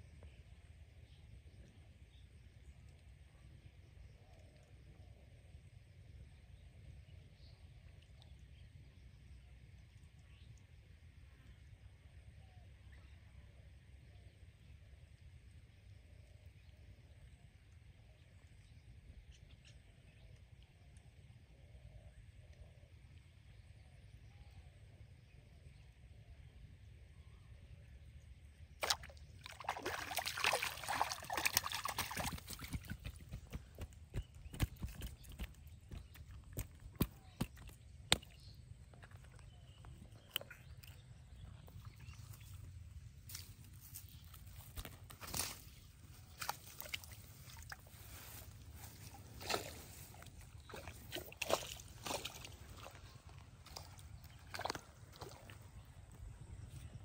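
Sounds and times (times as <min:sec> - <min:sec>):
water dripping: 0:28.8 - 0:33.9, 0:34.5 - 0:38.3
fish splashing in water: 0:28.8 - 0:37.7, 0:50.6 - 0:55.8
rustles and clicks of fishing gear: 0:31.4 - 0:57.0.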